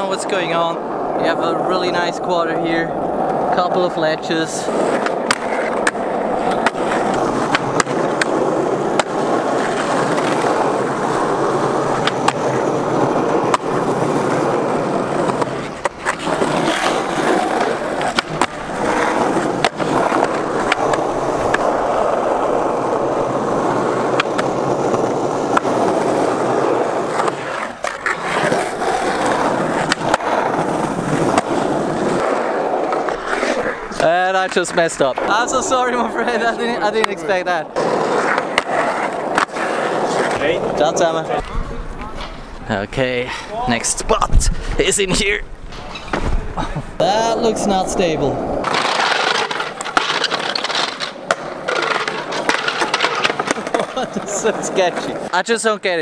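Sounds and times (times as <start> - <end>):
skateboard wheels rolling on asphalt: 0.0 - 56.0
skateboard clacks: 4.7 - 42.4, 48.6 - 55.3.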